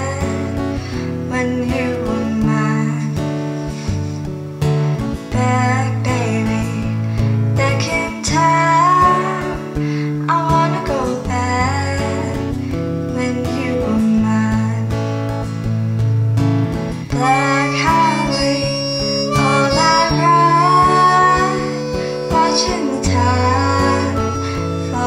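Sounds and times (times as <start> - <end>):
acoustic guitar: 0.0 - 25.0
harmonica melody: 17.1 - 25.0.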